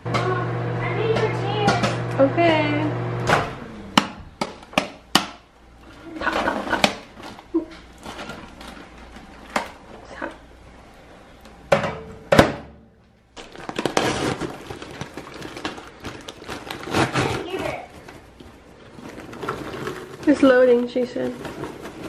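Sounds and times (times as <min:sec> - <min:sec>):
paper bag crinkling: 0:06.0 - 0:09.9, 0:13.4 - 0:22.0.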